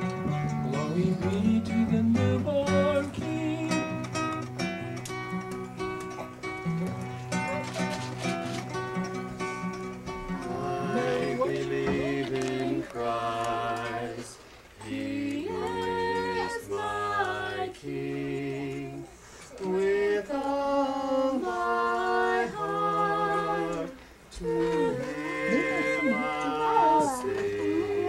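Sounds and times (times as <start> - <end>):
man and woman singing a carol: 0.2 - 4.9, 10.3 - 28.0.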